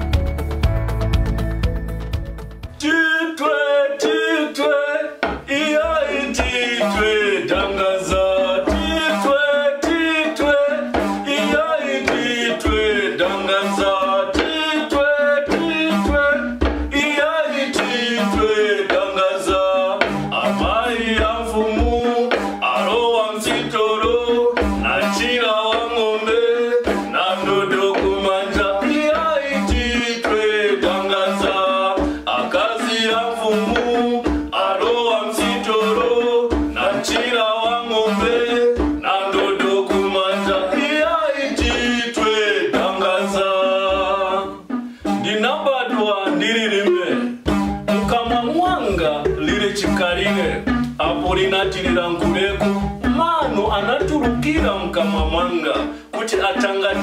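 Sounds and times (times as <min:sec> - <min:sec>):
men singing: 0:02.8 - 0:57.0
pestle pounding in mortar: 0:05.2 - 0:06.7, 0:09.8 - 0:43.1
hand drum thuds: 0:05.2 - 0:45.3, 0:47.4 - 0:57.0.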